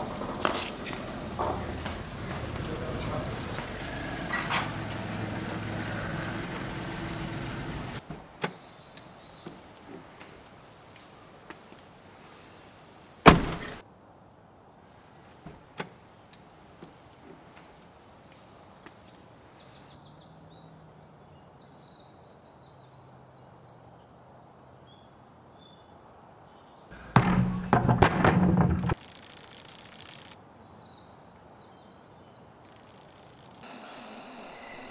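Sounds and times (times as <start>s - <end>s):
loud noise: 0.0s - 8.0s
small birds chirping: 0.0s - 10.0s, 16.3s - 27.1s, 29.0s - 34.9s
car door slamming: 13.3s - 13.8s.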